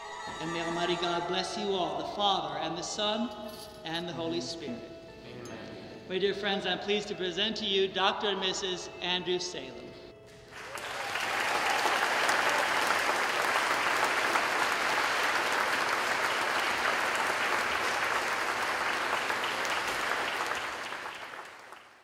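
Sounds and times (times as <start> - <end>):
congregation clapping: 10.3 - 22.0.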